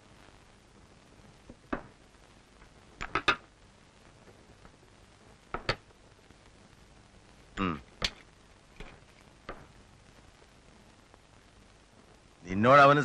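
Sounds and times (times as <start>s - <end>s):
faint hiss: 0.0s - 13.0s
objects knocking on a table: 1.7s - 2.0s, 5.5s - 5.8s, 8.8s - 9.7s.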